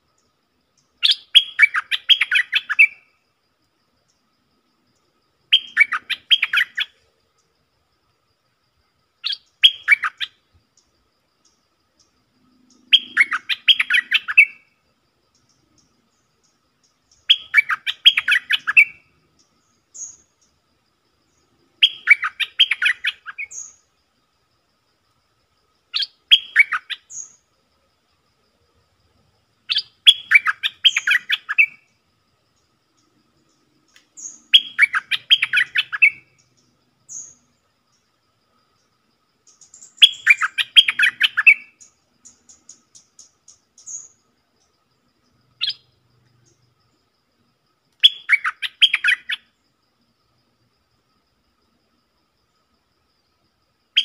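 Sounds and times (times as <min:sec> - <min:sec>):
bird song warbled phrases: 0:00.1 - 0:03.2, 0:04.9 - 0:07.6, 0:09.2 - 0:24.1, 0:25.8 - 0:27.6, 0:29.6 - 0:47.0, 0:47.9 - 0:49.5.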